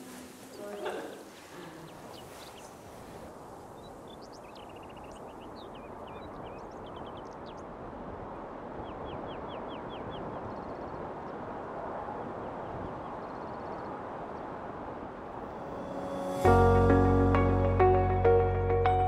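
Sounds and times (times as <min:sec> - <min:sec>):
small birds chirping: 0:00.0 - 0:07.8, 0:08.6 - 0:14.6.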